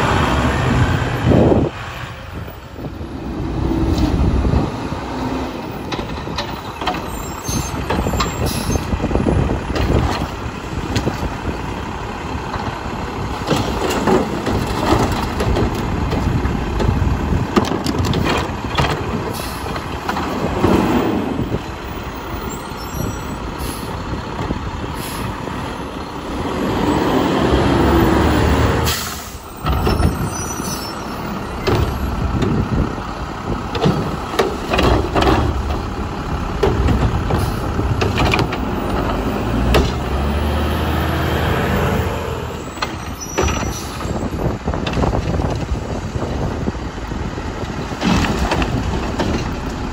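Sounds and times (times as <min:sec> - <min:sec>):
diesel engine running: 0:00.0 - 0:49.9
metal clanks and knocks: 0:05.8 - 0:08.5, 0:13.4 - 0:20.9, 0:33.7 - 0:35.9, 0:36.6 - 0:40.1, 0:47.9 - 0:49.9
air brakes hissing: 0:07.2 - 0:09.0, 0:19.3 - 0:19.7, 0:22.9 - 0:24.0, 0:28.8 - 0:29.6.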